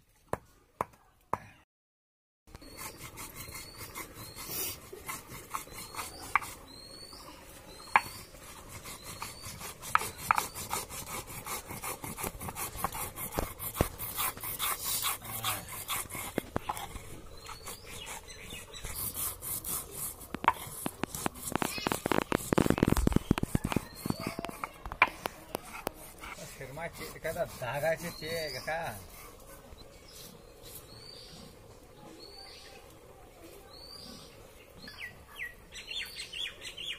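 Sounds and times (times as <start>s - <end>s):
stone rasping on stone: 2.5s - 31.6s.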